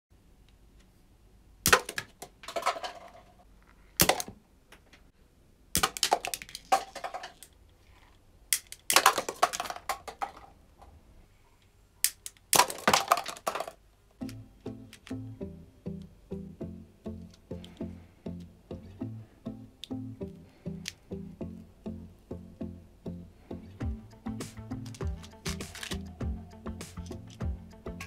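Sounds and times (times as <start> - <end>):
plastic cups hit with sharp clack: 1.7 - 3.3, 4.0 - 4.4, 5.8 - 7.5, 8.6 - 10.6, 12.1 - 13.8
plastic cups clattering on table: 1.8 - 3.4, 5.8 - 7.5, 8.9 - 10.6, 12.6 - 13.8.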